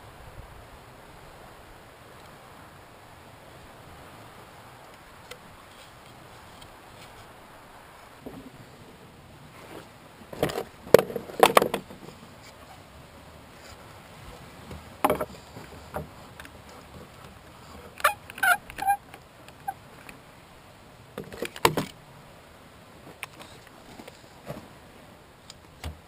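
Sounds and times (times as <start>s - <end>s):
short squeaks: 17.9s - 19.8s.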